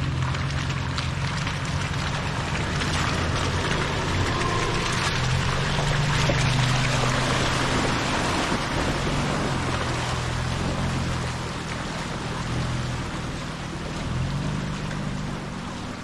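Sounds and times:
engine droning: 0.0 - 16.0.

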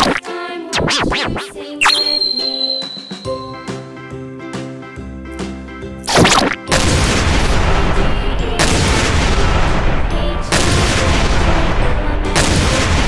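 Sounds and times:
background music: 0.0 - 13.0
explosions: 6.1 - 13.0.

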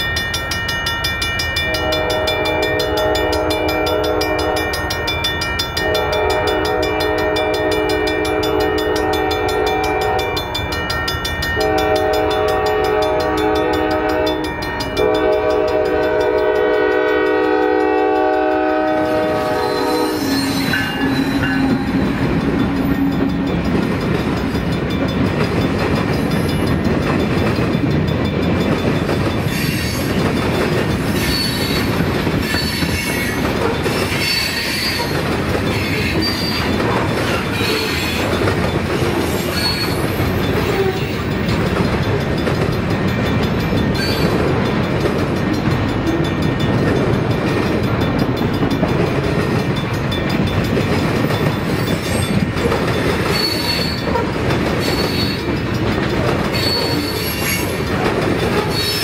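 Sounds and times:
train cars rolling past: 0.0 - 59.0
train horn blasts: 1.6 - 10.6, 11.6 - 23.4
wheels clicking over rail joints: 20.6 - 59.0.

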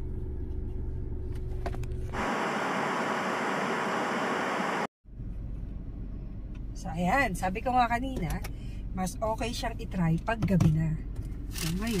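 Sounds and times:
low car cabin rumble: 0.0 - 2.5, 5.1 - 12.0.

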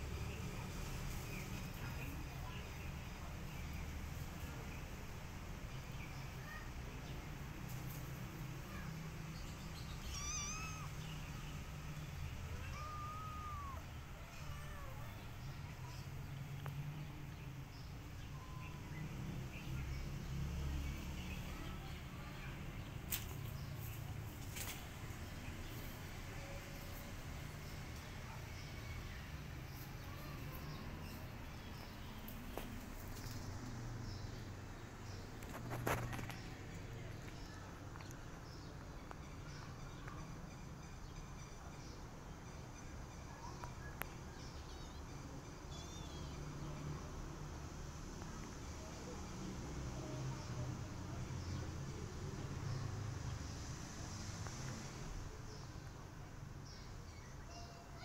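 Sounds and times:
kitten meowing: 10.0 - 11.0, 12.5 - 15.1.

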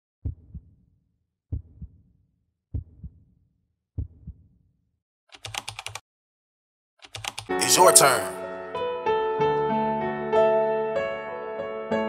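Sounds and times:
heartbeat thumps: 0.2 - 0.7, 1.5 - 2.0, 2.7 - 3.2, 4.0 - 4.4.

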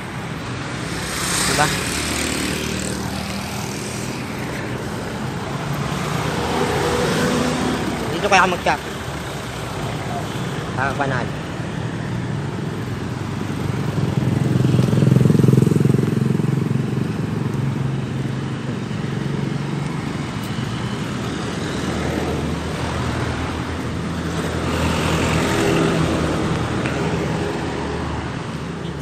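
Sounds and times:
vehicle engine passing: 0.0 - 8.4
traffic hum: 0.0 - 29.0.

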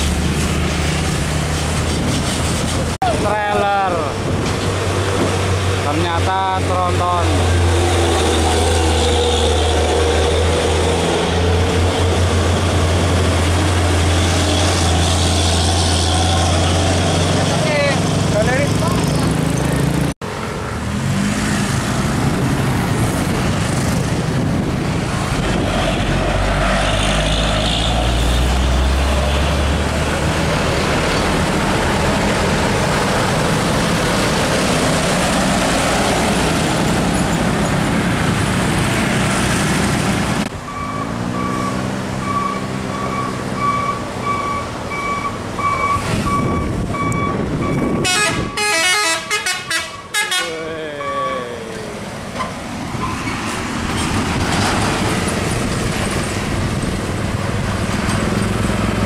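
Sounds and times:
diesel trucks passing: 0.0 - 59.0
multi-tone horn: 47.9 - 51.2
truck horn holding one note: 48.0 - 50.6.

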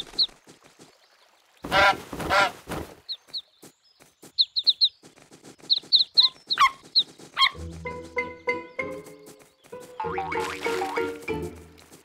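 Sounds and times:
goslings peeping: 4.4 - 4.9, 5.6 - 7.6.

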